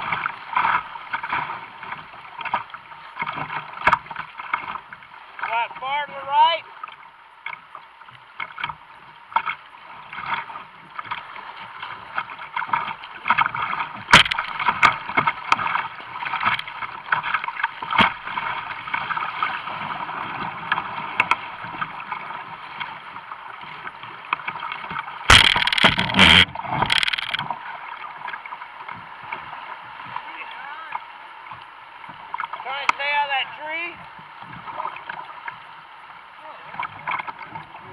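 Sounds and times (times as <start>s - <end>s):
paddle splashes and knocks: 0.0s - 37.9s
floodwater rushing: 14.1s - 21.2s, 25.2s - 28.8s
loud splashing: 25.3s - 27.4s.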